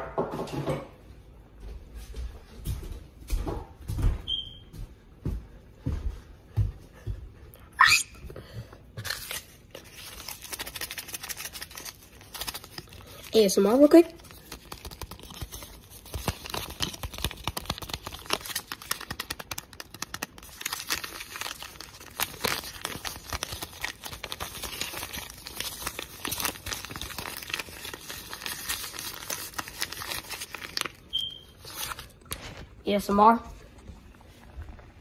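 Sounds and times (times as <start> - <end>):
paper sheet crinkling: 9.0 - 32.8.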